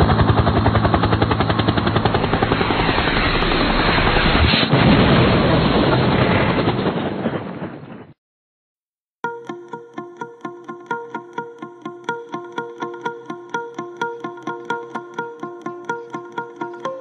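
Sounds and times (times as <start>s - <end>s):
bulldozer diesel engine running: 0.0s - 4.2s.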